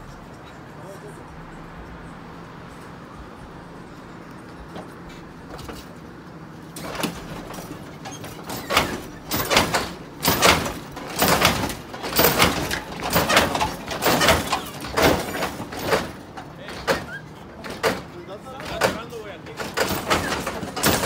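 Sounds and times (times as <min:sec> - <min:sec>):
car hydraulic suspension bouncing: 0:04.4 - 0:21.0.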